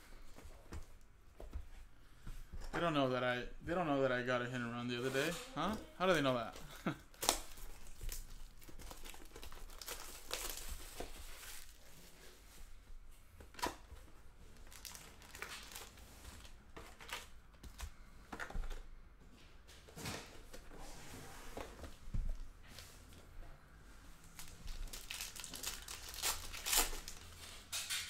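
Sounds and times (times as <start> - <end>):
foil packs crinkling: 5.1 - 11.9, 14.5 - 17.5, 24.2 - 28.0.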